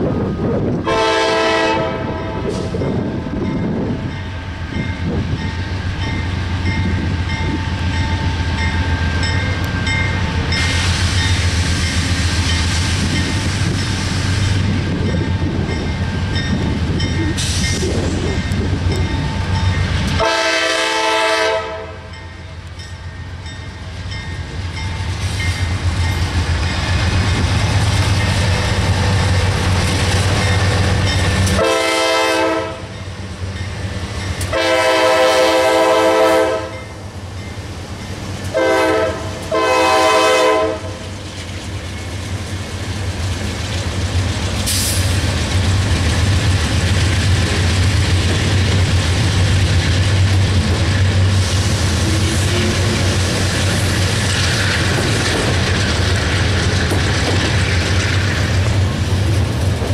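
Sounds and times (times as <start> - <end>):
locomotive engine drone: 0.0 - 59.9
train air horn: 0.8 - 2.8, 20.2 - 22.1, 31.5 - 32.9, 34.5 - 36.8, 38.5 - 41.0.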